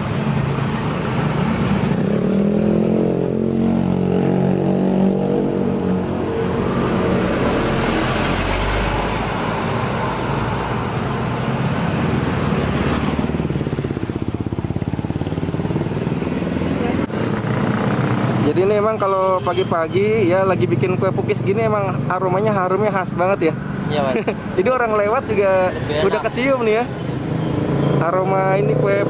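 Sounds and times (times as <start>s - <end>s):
vehicle engine passing: 0.0s - 19.1s
steady traffic rumble: 0.0s - 29.0s.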